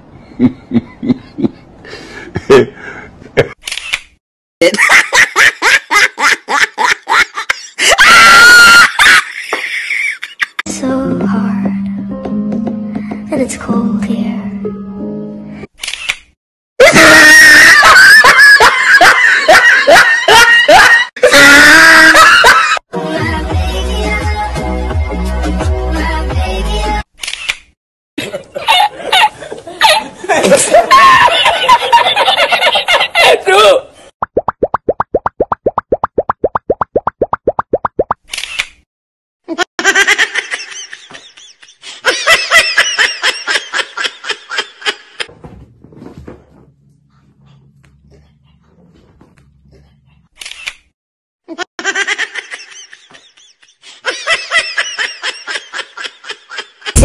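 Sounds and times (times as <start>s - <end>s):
person crying out repeatedly: 16.8s - 18.2s, 21.2s - 22.6s.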